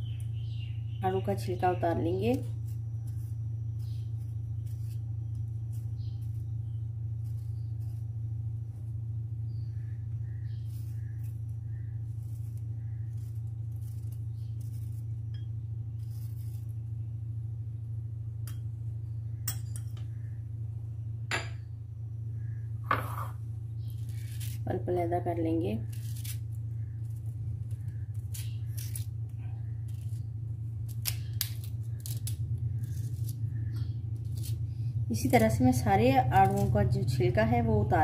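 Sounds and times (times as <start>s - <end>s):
steady low hum: 0.0s - 38.0s
knife scraping peeling fruit: 1.4s - 9.0s, 10.2s - 17.1s, 23.0s - 24.9s, 25.8s - 37.1s.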